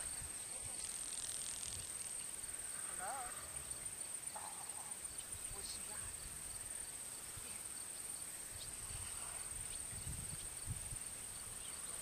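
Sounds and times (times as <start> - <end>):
wind rumble on microphone: 8.6 - 11.7.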